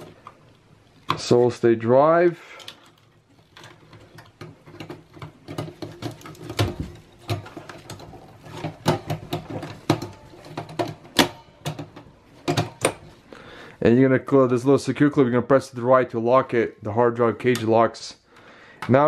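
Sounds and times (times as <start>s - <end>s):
hands clicking and rubbing plastic: 2.5s - 13.3s.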